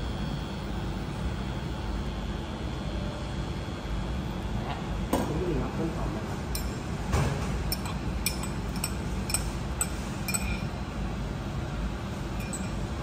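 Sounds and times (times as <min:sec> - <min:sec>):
low background hum: 0:00.0 - 0:13.0
ceramic bowl clinking on metal: 0:07.7 - 0:10.7, 0:12.4 - 0:12.8.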